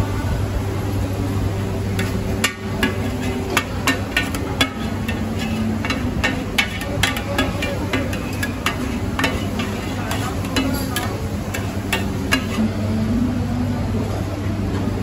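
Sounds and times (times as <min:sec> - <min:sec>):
steady low hum: 0:00.0 - 0:15.0
utensils clinking and knocking: 0:02.0 - 0:12.6.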